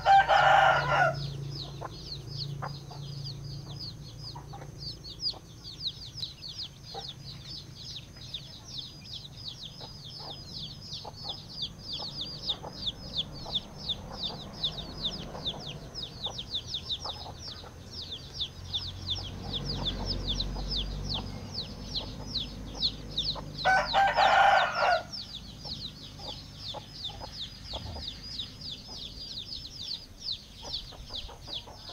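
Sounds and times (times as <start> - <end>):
rooster crowing: 0.0 - 1.4, 23.6 - 25.3
chicks peeping: 0.0 - 31.9
hen clucking: 0.0 - 31.9.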